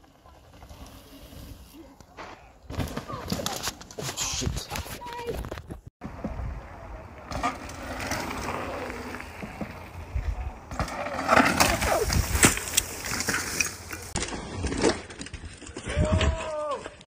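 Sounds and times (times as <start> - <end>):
bike tyres rolling over dirt: 0.0 - 17.0
bike crash clattering: 10.7 - 15.9.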